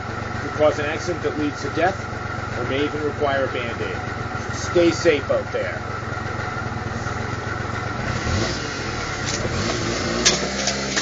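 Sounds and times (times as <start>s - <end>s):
motor scooter engine revving: 6.2s - 11.0s.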